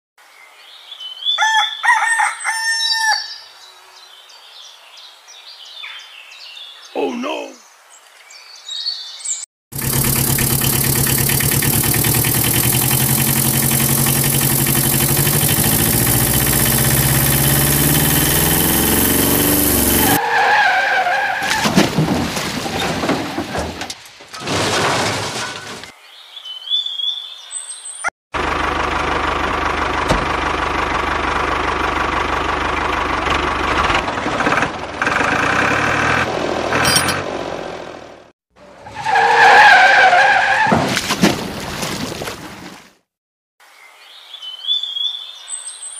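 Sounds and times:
tractor engine running: 9.7 - 20.2, 28.4 - 37.8.

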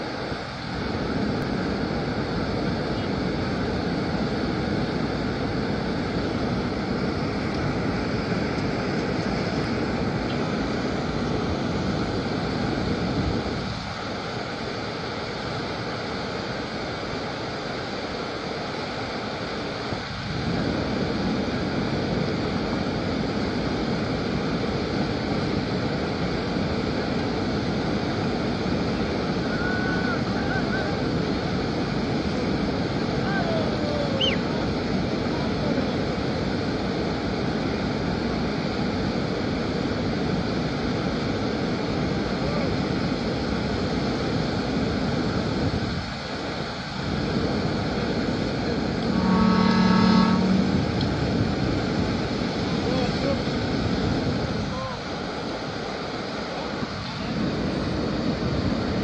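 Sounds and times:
floodwater rushing: 0.0 - 59.0
wind buffeting microphone: 0.0 - 59.0.

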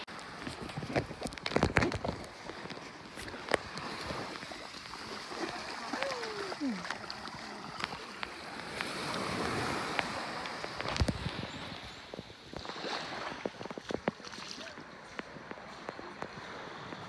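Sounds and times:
waves washing on sandy shore: 0.0 - 17.0
faint voices: 5.4 - 7.2.

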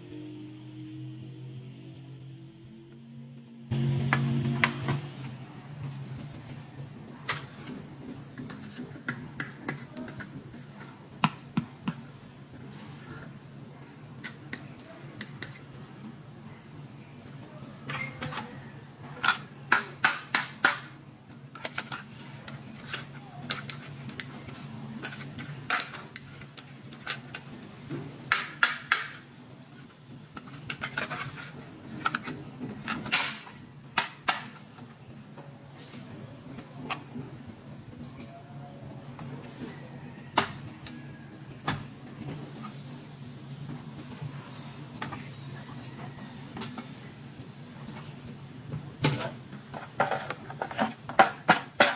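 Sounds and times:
faint low hum: 0.0 - 19.9.

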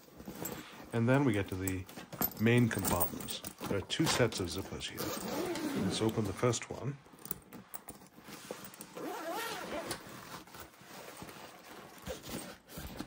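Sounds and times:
zipper being pulled open: 5.0 - 6.2, 7.8 - 13.0.

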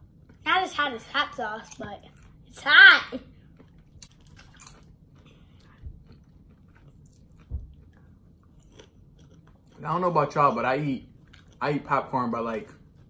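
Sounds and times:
popcorn chewing crunches: 3.6 - 13.0.

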